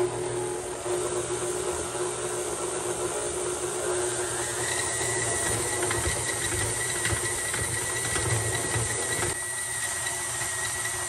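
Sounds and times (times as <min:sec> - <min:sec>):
stand mixer beating dough: 0:00.0 - 0:11.0.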